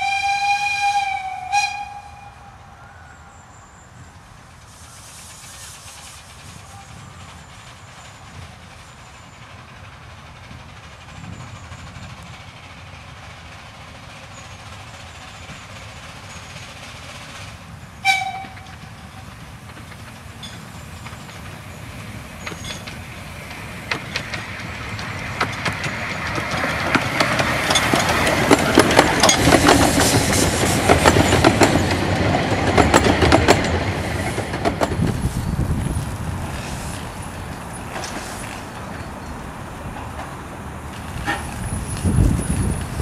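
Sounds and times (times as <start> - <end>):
steam locomotive whistle: 0.0 - 3.1, 18.0 - 19.3
train passing: 0.0 - 43.0
wheels clicking over rail joints: 4.6 - 43.0.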